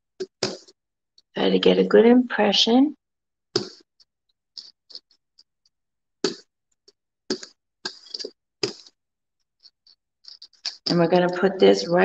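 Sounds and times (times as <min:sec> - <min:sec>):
brayer crackling through wet paint: 0:00.2 - 0:00.8, 0:03.5 - 0:12.0.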